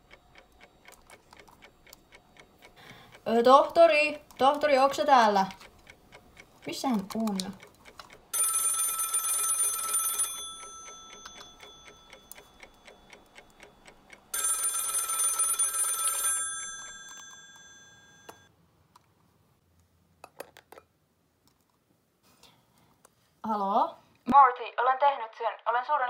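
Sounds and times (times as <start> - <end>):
bell-like telephone ring: 8.3 - 13.6, 14.3 - 18.5.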